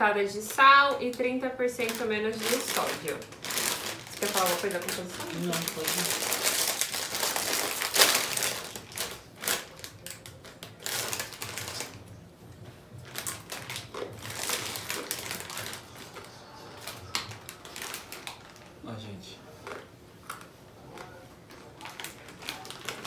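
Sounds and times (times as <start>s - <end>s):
plastic bag crinkling: 0.5s - 12.0s, 13.0s - 18.8s, 19.6s - 23.0s
bag ripping open: 1.8s - 12.0s, 13.0s - 16.2s, 21.7s - 23.0s
chips crunching: 1.8s - 12.0s, 13.0s - 18.8s, 19.6s - 23.0s.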